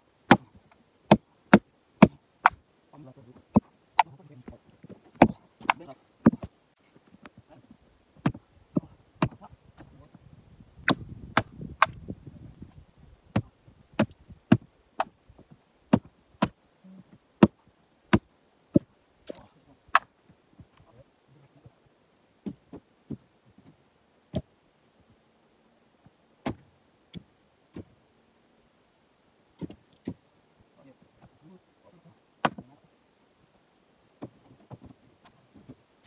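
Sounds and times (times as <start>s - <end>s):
maul knocking on wood: 5.2s - 6.5s.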